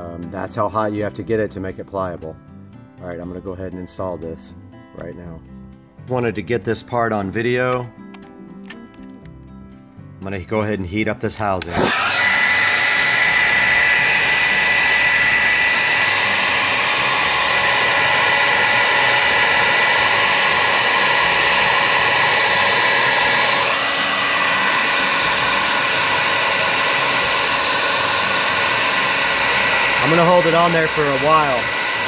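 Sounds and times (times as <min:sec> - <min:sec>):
hair dryer running: 0:11.6 - 0:32.0.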